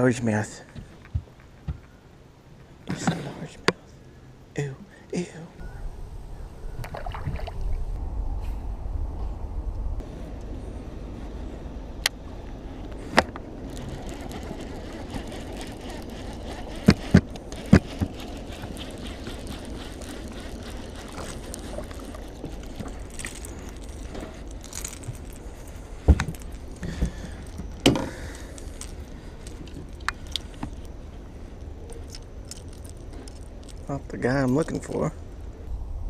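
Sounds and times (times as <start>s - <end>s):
steady low rumble: 3.4s - 36.0s.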